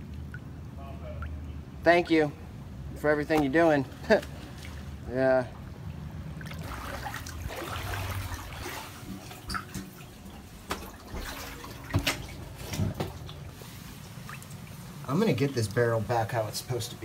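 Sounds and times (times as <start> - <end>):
water sloshing and splashing: 0.0 - 1.8, 3.0 - 16.8.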